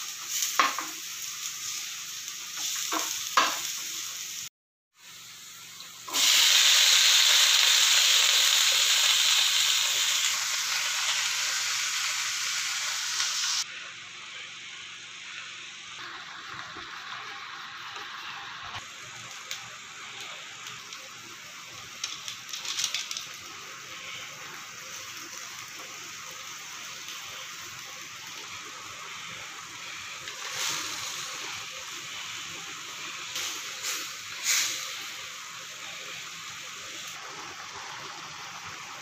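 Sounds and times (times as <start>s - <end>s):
liquid simmering with hiss: 0.0s - 39.0s
wooden spoon knocking on pan: 2.9s - 3.6s.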